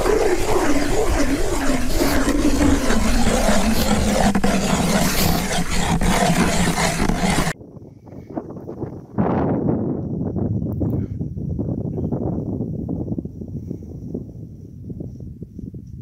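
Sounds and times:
ice auger grinding through ice: 0.0s - 7.6s.

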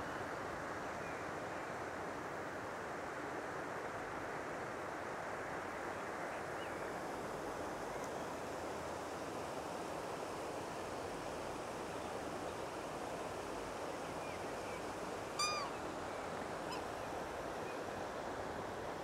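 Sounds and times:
swan ringing call: 15.4s - 15.8s.

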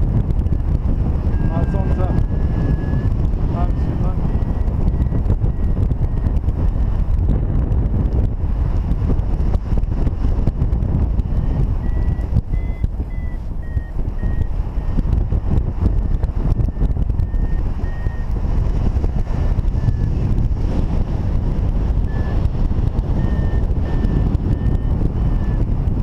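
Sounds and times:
wind rush on microphone: 0.0s - 26.0s
electronic beeping tones: 0.3s - 6.7s, 11.4s - 15.0s, 15.8s - 18.3s, 19.7s - 20.2s, 22.0s - 25.7s.

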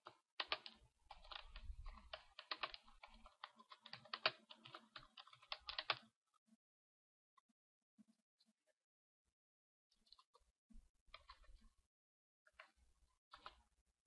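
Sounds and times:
typing on computer keyboard: 0.0s - 6.1s, 11.2s - 11.5s, 12.6s - 13.6s.

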